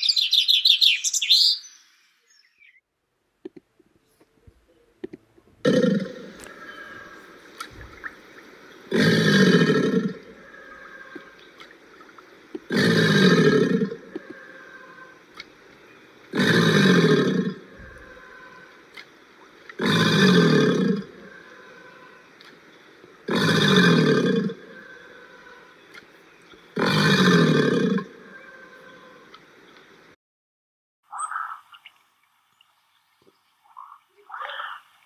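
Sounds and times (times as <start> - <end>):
alligator calling: 5.6 - 15.6, 16.2 - 22.5, 23.2 - 29.4, 31.1 - 31.9, 33.7 - 34.9.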